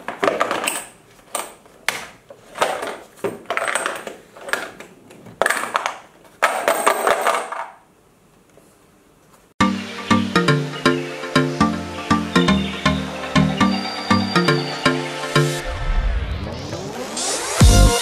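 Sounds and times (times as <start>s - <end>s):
coin rolling and rattling: 6.4s - 7.8s.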